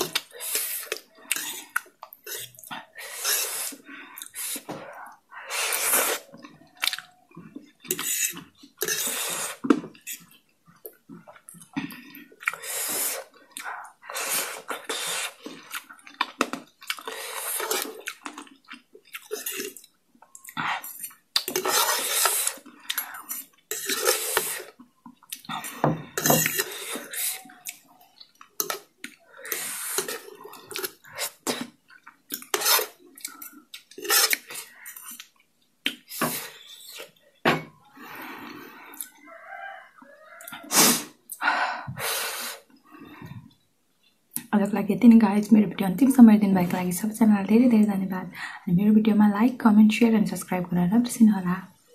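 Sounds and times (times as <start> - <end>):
slurping noodles: 0.0 - 7.0, 7.9 - 10.4, 11.6 - 18.5, 20.5 - 27.9, 28.6 - 35.3, 40.5 - 41.2
fork scraping and clinking on plate: 26.2 - 27.2.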